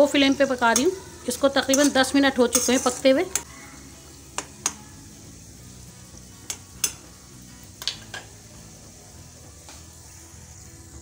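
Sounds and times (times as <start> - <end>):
oil and garlic sizzling: 0.0 - 11.0
metal spoon clinking on pan: 0.5 - 1.0, 1.6 - 3.5, 6.4 - 7.0.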